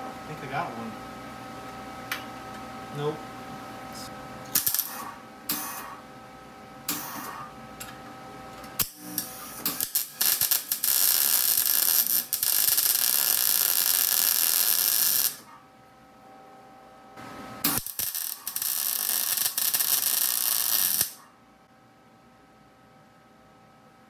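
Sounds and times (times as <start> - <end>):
welder arc crackling: 4.4 - 5.8, 8.7 - 15.5, 17.6 - 21.2.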